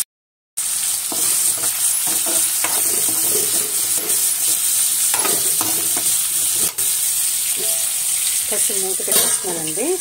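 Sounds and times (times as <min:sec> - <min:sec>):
food sizzling in hot oil: 0:00.6 - 0:10.0
steel spatula scraping pan: 0:01.1 - 0:08.4.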